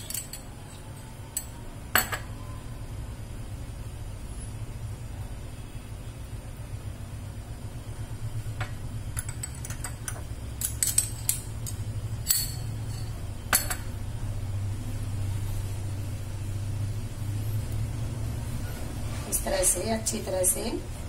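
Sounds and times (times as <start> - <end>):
metal utensil clinking on plate: 0.0 - 0.5, 9.2 - 13.9
steady low hum: 0.0 - 21.0.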